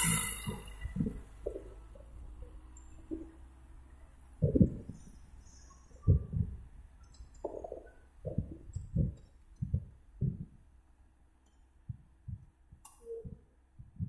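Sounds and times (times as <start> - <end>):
tractor engine hum: 0.0 - 10.4
low rumbling thuds: 4.4 - 5.2, 6.0 - 6.7, 7.6 - 10.7.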